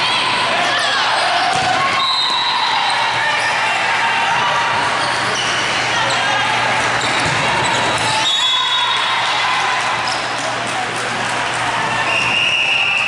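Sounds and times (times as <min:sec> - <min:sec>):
hubbub of voices: 0:00.0 - 0:13.0
sneakers squeaking on court: 0:05.0 - 0:08.3.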